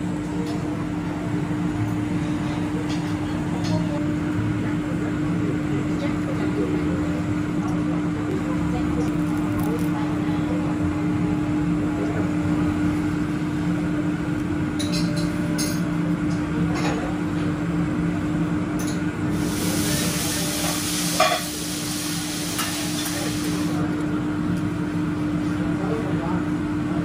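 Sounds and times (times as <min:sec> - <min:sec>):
liquid sizzling on griddle: 0:19.3 - 0:23.8.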